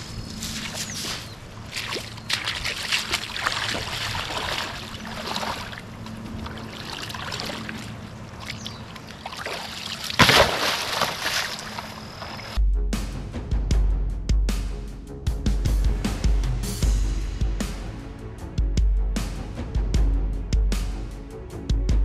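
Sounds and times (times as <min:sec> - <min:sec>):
water sloshing and splashing: 0:00.0 - 0:12.6
loud water splash: 0:01.7 - 0:12.6.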